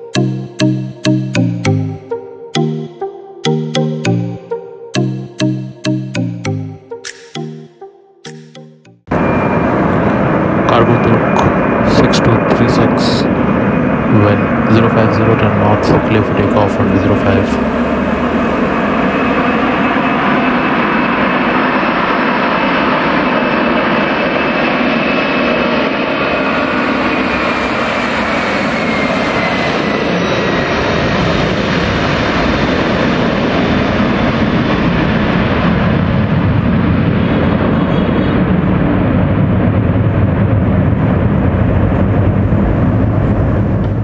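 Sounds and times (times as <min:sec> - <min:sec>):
jet engine roar: 0:09.1 - 0:44.0
deep rumble: 0:38.3 - 0:44.0.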